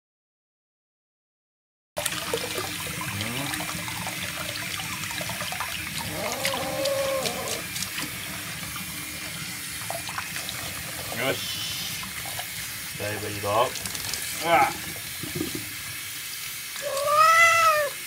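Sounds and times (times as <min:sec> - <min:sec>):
running water splashing: 0:02.0 - 0:18.0
cat crying: 0:06.0 - 0:07.7, 0:16.8 - 0:18.0.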